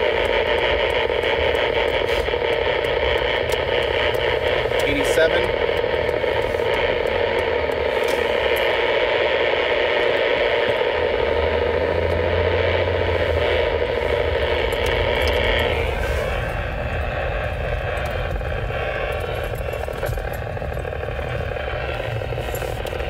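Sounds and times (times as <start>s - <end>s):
radio interference noise: 0.0s - 23.0s
road and engine noise: 0.0s - 23.0s.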